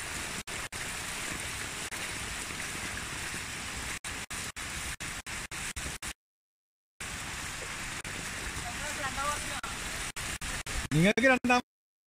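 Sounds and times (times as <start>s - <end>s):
floodwater rushing: 0.0s - 6.1s, 7.0s - 11.1s
heavy rain falling: 7.0s - 11.0s.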